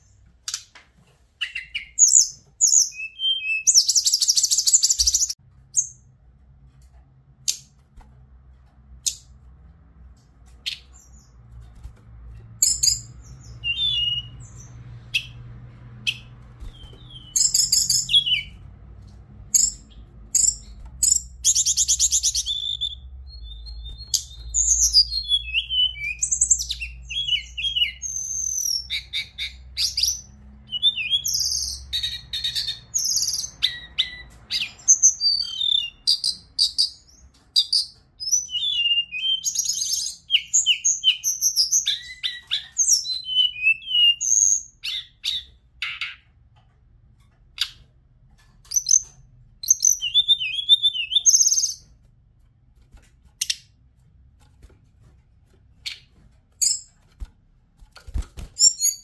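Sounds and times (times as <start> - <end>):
bird singing trills and whistles: 1.4 - 6.0, 12.6 - 15.4, 16.0 - 18.6, 19.5 - 46.2, 48.7 - 51.8, 58.4 - 59.0.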